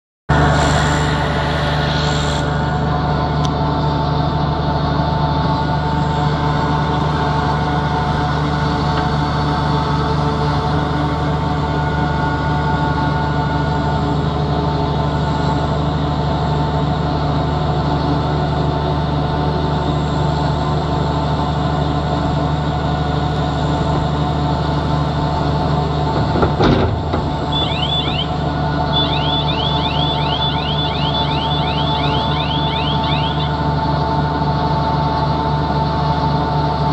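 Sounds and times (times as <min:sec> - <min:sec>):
diesel machinery drone: 0:00.3 - 0:36.9
tractor and feed mixer running: 0:00.3 - 0:36.9
squeaky rising chirp: 0:27.4 - 0:33.7.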